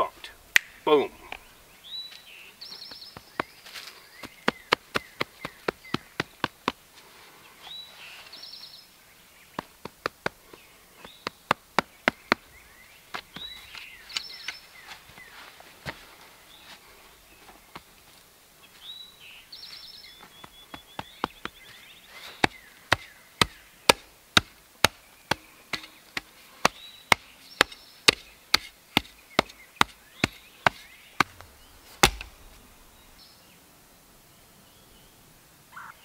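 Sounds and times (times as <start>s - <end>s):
birds singing: 0.0s - 36.0s
shovel chopping into dirt: 22.4s - 32.6s.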